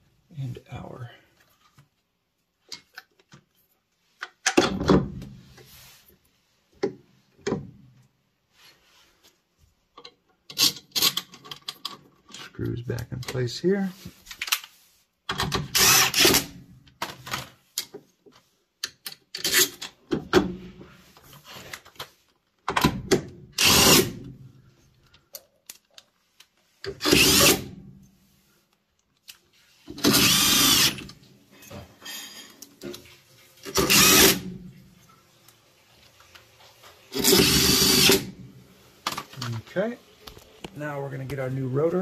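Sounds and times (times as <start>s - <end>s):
cordless drill driving screws: 15.6s - 16.5s, 23.6s - 24.2s, 27.0s - 27.7s, 29.9s - 31.1s, 33.7s - 34.5s, 37.1s - 38.3s.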